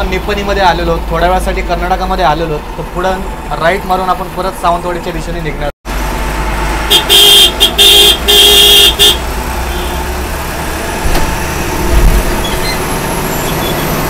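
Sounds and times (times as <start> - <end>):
bus engine and road noise: 0.0 - 14.0
vehicle horn honks: 6.9 - 10.1.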